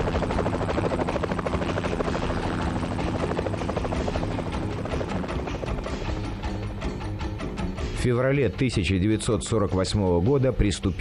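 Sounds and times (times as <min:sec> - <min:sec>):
helicopter rotors chattering: 0:00.0 - 0:07.9.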